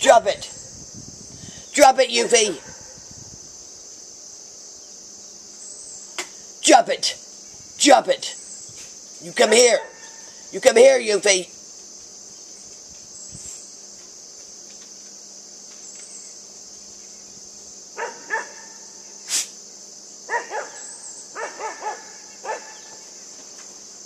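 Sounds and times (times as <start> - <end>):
insects chirring: 0.0 - 24.0
puppy yelping barks: 18.0 - 18.6, 20.3 - 20.8, 21.4 - 22.8.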